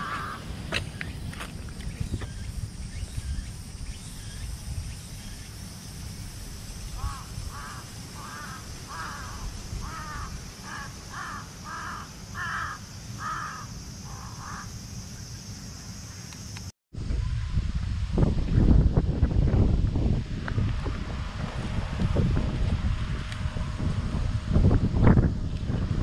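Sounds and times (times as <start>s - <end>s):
crow cawing: 0.0s - 0.4s, 7.0s - 14.7s.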